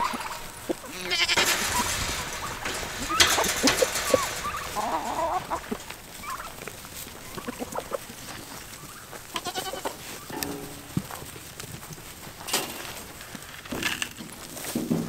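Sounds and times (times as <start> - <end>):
goats bleating: 0.0 - 1.8, 9.2 - 10.2
poultry clucking: 0.0 - 13.3.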